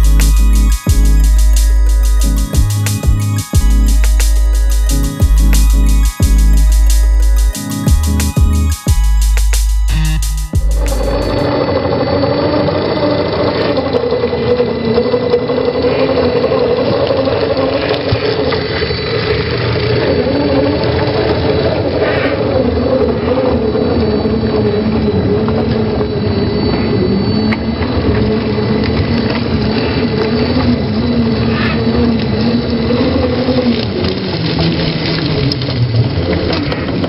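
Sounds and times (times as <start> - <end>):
toy car engine running: 10.6 - 22.5, 28.3 - 37.0.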